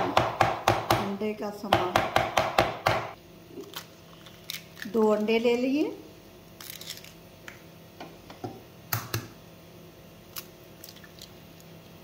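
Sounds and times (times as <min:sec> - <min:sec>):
eggshells cracking: 0:03.6 - 0:05.0, 0:06.6 - 0:07.2.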